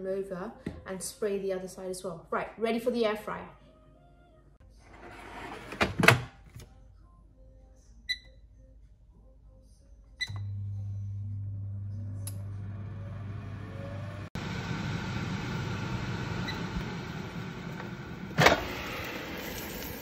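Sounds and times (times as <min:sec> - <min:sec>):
air fryer fan motor: 0:10.2 - 0:20.0.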